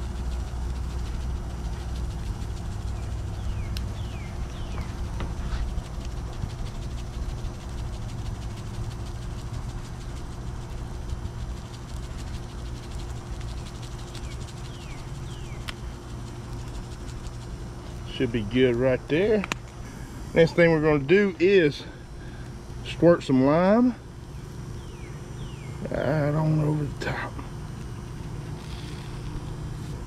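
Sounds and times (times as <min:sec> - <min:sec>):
faint hum: 0:00.0 - 0:30.0
bird chirps: 0:02.9 - 0:05.0, 0:14.2 - 0:15.7, 0:24.3 - 0:26.0.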